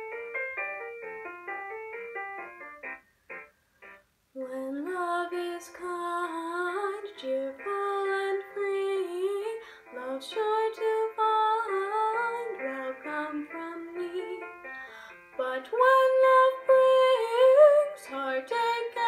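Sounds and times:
soft piano accompaniment: 0.0 - 19.0
girl singing with vibrato: 4.4 - 14.5, 15.4 - 19.0.

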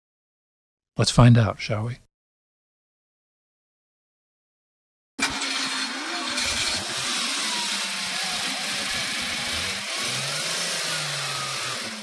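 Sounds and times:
car engine running: 5.2 - 12.0.

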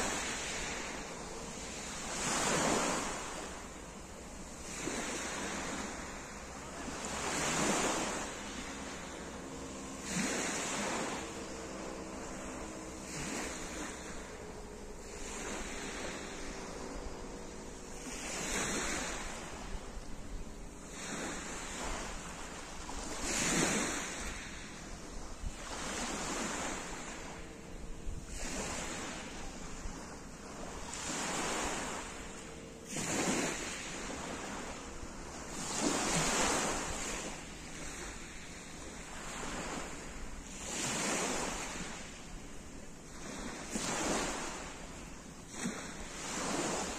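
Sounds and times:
waves washing over pebbles: 0.0 - 3.8, 4.6 - 19.7, 20.9 - 24.5, 30.7 - 42.1
wind rumbling on microphone: 0.0 - 46.9.

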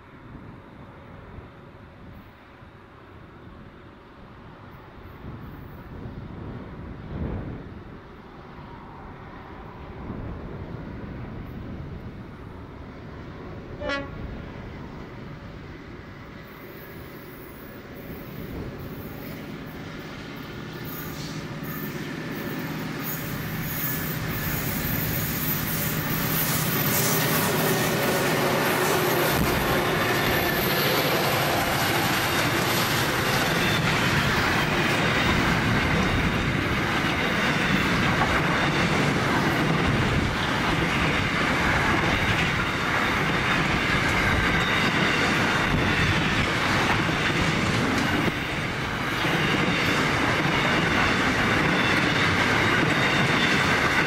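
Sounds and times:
diesel locomotive engines: 0.0 - 54.0
train wheels squealing: 5.0 - 6.0, 16.2 - 54.0
train wheels clattering on rails: 16.2 - 54.0.

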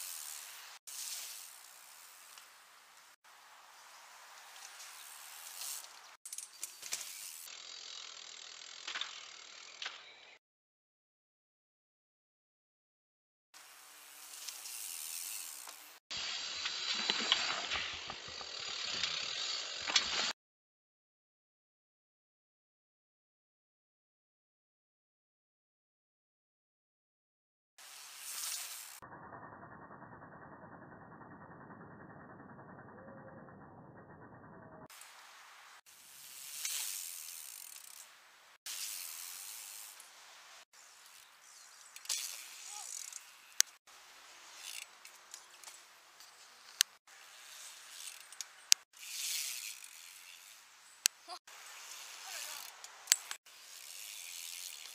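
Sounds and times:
bike tyres rolling on dirt: 0.0 - 10.0, 13.6 - 20.3, 34.9 - 54.9.

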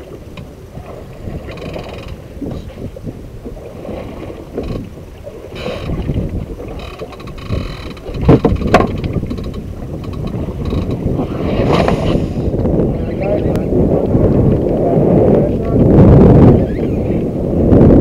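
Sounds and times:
wind buffeting microphone: 0.0 - 18.0
sharp knocks: 7.0 - 10.8.

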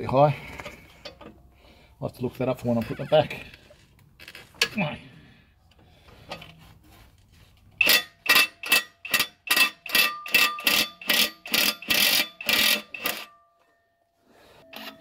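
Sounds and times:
impact wrench hammering: 7.8 - 13.3.

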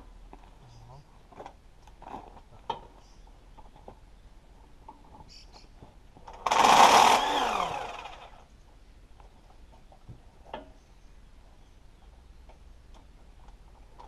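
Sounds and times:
motor-driven machine winding down: 6.4 - 8.4.

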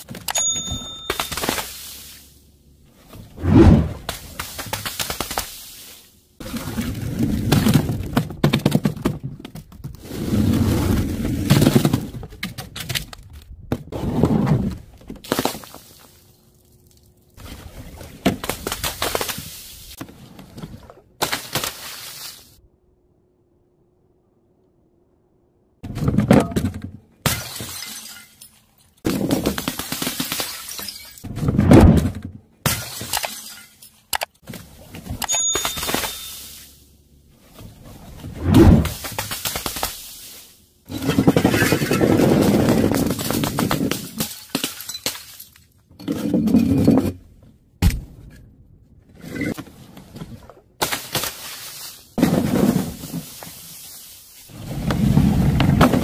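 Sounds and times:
broken glass tinkling: 0.3 - 2.0, 35.3 - 36.8
glass bottles smashing: 0.3 - 2.1, 27.3 - 28.7, 29.7 - 31.2, 32.7 - 34.1, 35.3 - 36.8, 42.9 - 45.6
plastic bottles tumbling down steps: 6.4 - 10.0, 10.9 - 13.9, 40.9 - 45.3, 49.5 - 53.8, 54.5 - 56.0.

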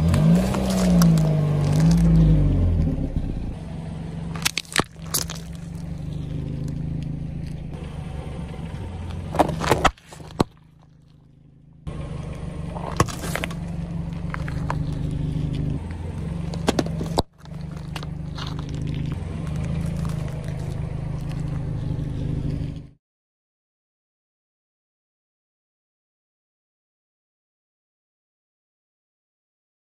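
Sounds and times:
car engine humming: 0.0 - 23.0
sharp cracks and pops: 0.1 - 2.2, 4.3 - 7.6, 16.5 - 21.6
tyre crushing plastic pouches: 4.4 - 5.8, 9.4 - 11.2.

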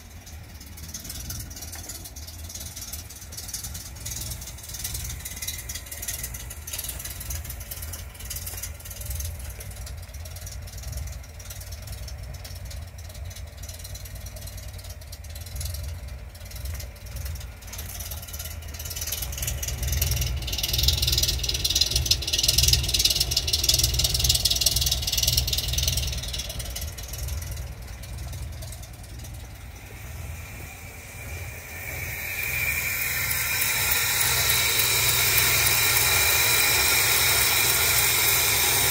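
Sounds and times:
engine idling: 0.0 - 38.9
high whine: 0.0 - 38.9
hiss: 29.1 - 38.9.

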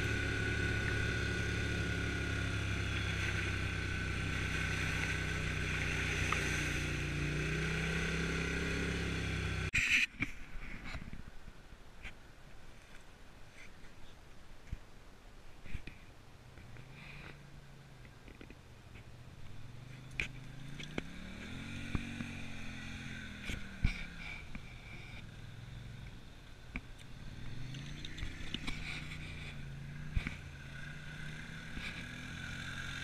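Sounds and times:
quad bike engine revving: 0.0 - 9.7, 19.6 - 26.1, 27.0 - 33.0.

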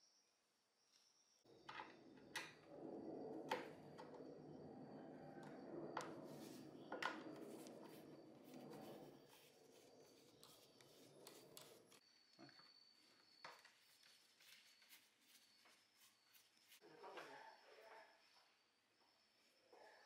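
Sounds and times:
screwdriver scraping: 7.4 - 12.0.

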